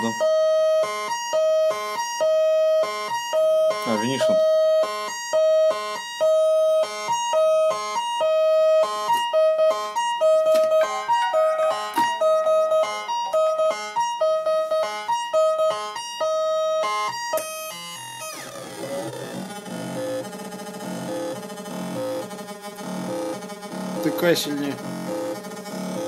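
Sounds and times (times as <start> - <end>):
synthesizer note sequence: 9.8 - 26.0
wavering gliding synth tone: 10.7 - 14.6.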